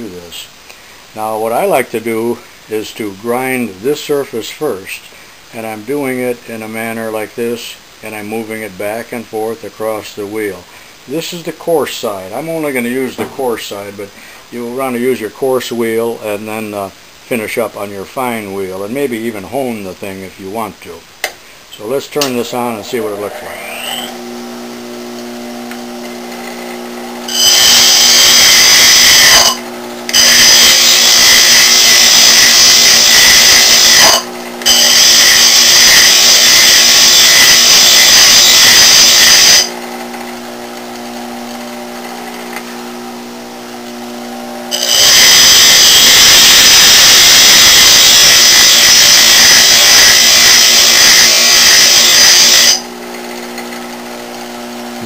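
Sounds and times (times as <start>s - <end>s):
tool bit grinding on wheel: 22.2s - 24.2s, 27.3s - 39.8s, 44.7s - 54.0s
bench grinder motor hum: 22.3s - 55.0s.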